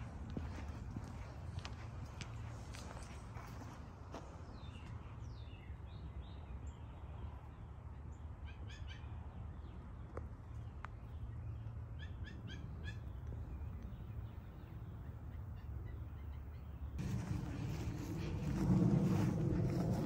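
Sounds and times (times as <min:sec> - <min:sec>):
birds chirping: 0:09.6 - 0:20.0
steady low rumble: 0:12.4 - 0:20.0.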